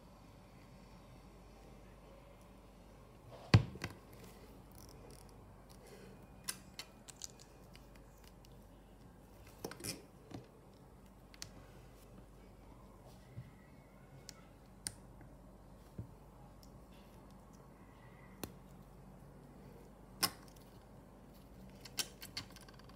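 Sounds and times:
plastic bricks clicking together: 0:21.8 - 0:22.9.

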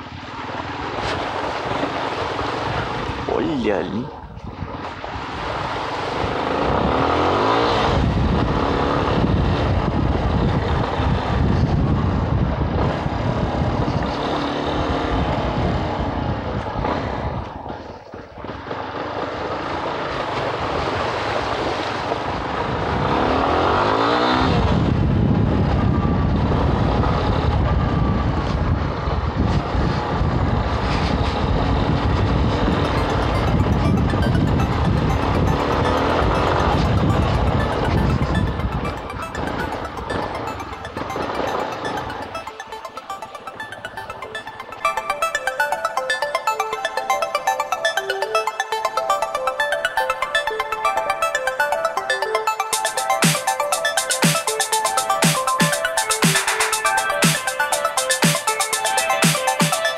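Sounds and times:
motorcycle engine revving: 0:05.8 - 0:09.7
wind noise: 0:07.9 - 0:14.1.

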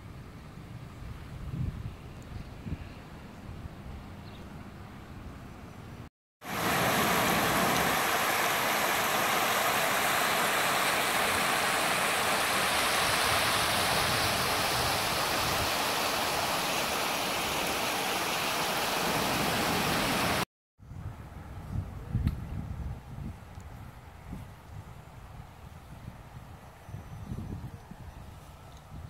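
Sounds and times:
river water pouring over weir: 0:06.4 - 0:20.4.

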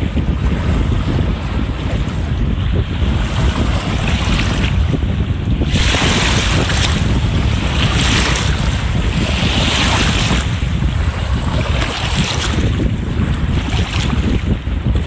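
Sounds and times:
wind buffeting microphone: 0:00.0 - 0:15.0
lake water lapping at shore: 0:05.6 - 0:15.0.

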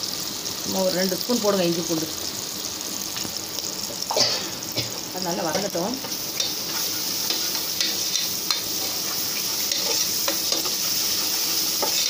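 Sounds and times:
onions sizzling in hot oil: 0:00.0 - 0:12.0
spatula scraping and tapping pan: 0:05.5 - 0:12.0.

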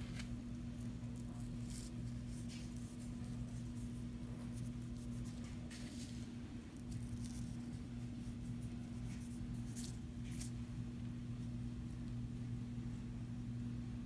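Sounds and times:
herb flakes rustling: 0:00.0 - 0:10.7
low electrical hum: 0:00.0 - 0:14.0.

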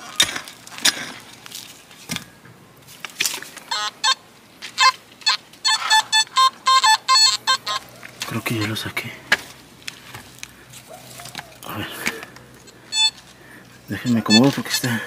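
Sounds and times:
metal detector beeps: 0:03.7 - 0:04.2, 0:04.8 - 0:08.8, 0:12.9 - 0:13.2, 0:13.9 - 0:15.0.

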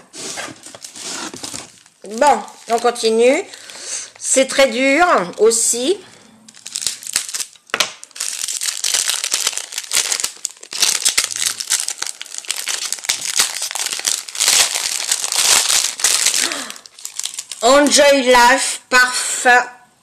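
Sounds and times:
wrapping paper crinkling and tearing: 0:00.0 - 0:04.1, 0:06.5 - 0:18.0.

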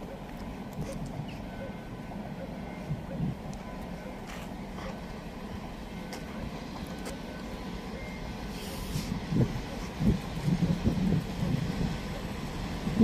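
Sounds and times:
distant train rumbling: 0:00.0 - 0:13.0
wind thumps on microphone: 0:08.9 - 0:12.0.

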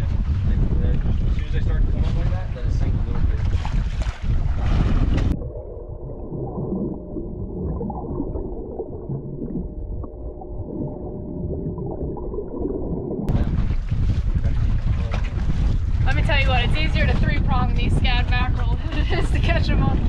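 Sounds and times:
muffled underwater gurgling: 0:00.0 - 0:20.0
wind buffeting microphone: 0:00.0 - 0:20.0
faint steady hum: 0:04.5 - 0:14.8.

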